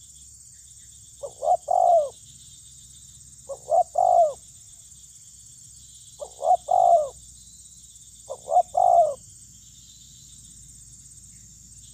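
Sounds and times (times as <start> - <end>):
dove cooing: 1.2 - 2.2, 3.4 - 4.4, 6.2 - 7.2, 8.3 - 9.2.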